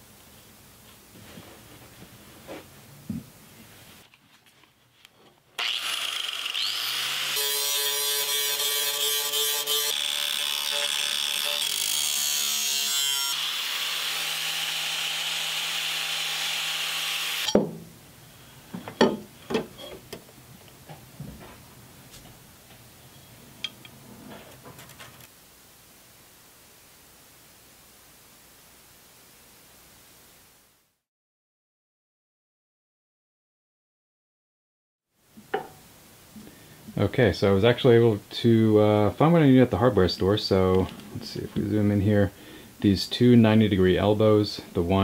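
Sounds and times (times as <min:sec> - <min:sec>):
power cutting tool cutting metal: 0:05.6 - 0:17.6.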